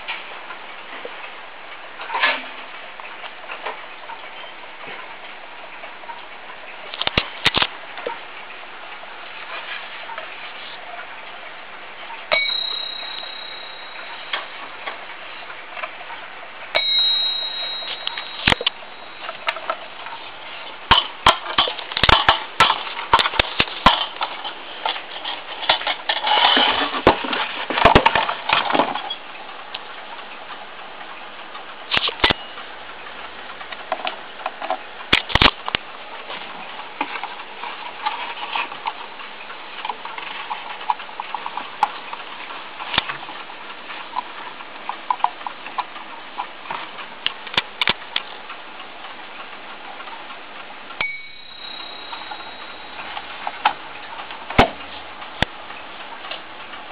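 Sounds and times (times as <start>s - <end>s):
clock bell chime: 12.3s - 14.5s, 16.8s - 19.4s, 51.0s - 53.2s
knocks and clatter of handling: 20.9s - 29.2s.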